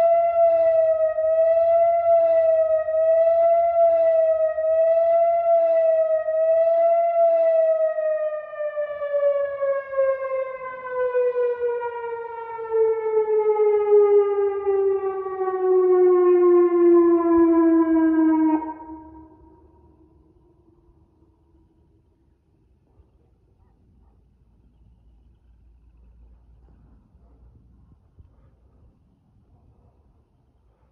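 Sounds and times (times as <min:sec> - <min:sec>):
warning siren wailing: 0:00.0 - 0:21.9.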